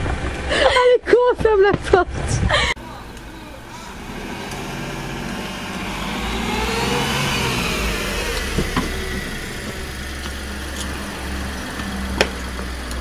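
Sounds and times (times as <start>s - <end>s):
car engine running: 2.8s - 13.0s.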